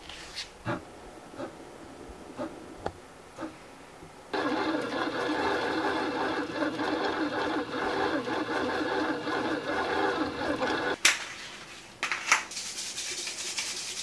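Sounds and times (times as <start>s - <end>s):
bread maker motor kneading: 4.3s - 11.0s.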